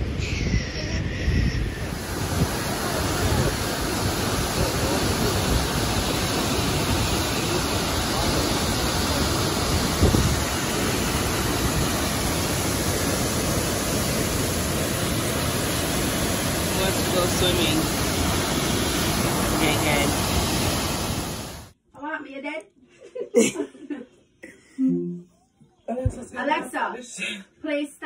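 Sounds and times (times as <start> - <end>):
waterfall roaring: 1.6 - 21.8.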